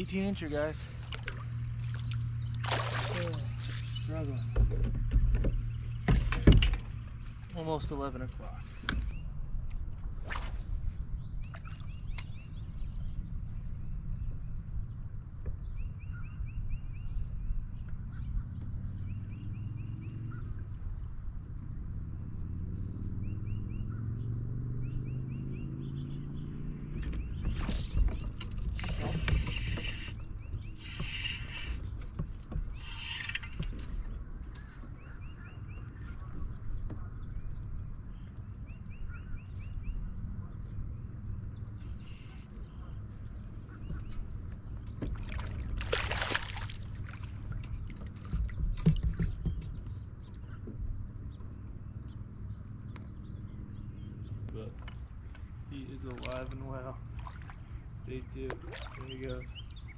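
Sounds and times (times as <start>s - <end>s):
high chirping ticks: 11.2s - 14.8s, 19.3s - 23.9s, 26.9s - 45.1s, 51.3s - 55.5s.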